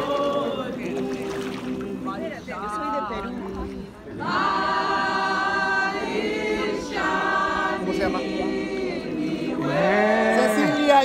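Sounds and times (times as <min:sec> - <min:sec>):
group singing unaccompanied: 0:00.0 - 0:11.0.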